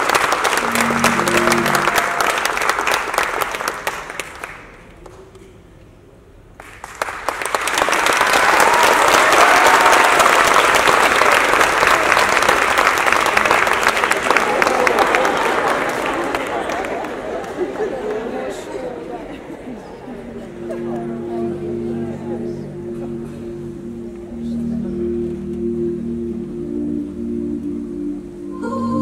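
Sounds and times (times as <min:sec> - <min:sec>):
people cheering: 0:00.0 - 0:03.8, 0:07.6 - 0:18.9
audience applauding: 0:00.0 - 0:05.4, 0:06.6 - 0:19.4, 0:20.1 - 0:23.5
music: 0:00.6 - 0:02.7, 0:20.4 - 0:29.0.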